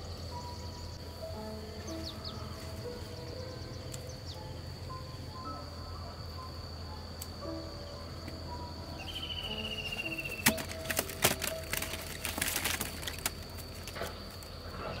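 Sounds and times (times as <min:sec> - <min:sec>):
high insect drone: 0:00.0 - 0:15.0
twigs cracking and snapping: 0:09.8 - 0:14.9.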